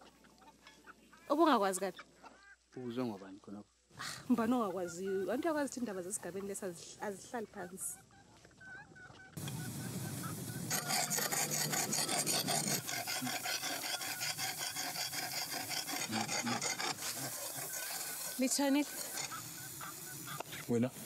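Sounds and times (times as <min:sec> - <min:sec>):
blade scraping on rock: 0:10.7 - 0:20.6.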